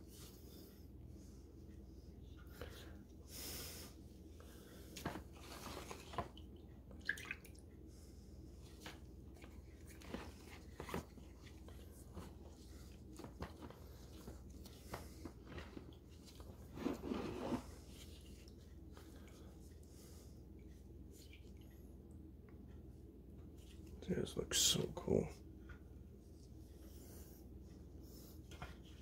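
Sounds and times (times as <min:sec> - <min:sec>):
wet squishing: 0:05.0 - 0:07.7, 0:08.7 - 0:16.6.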